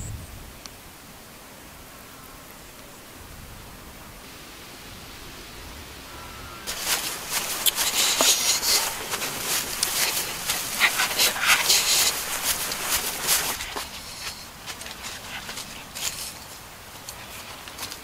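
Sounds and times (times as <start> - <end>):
open air hiss: 0.0 - 18.0
footsteps crunching dry grass: 6.0 - 18.0.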